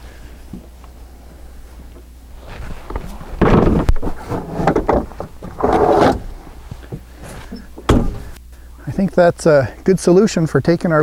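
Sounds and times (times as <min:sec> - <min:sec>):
plastic scraping against box: 0:02.4 - 0:06.3.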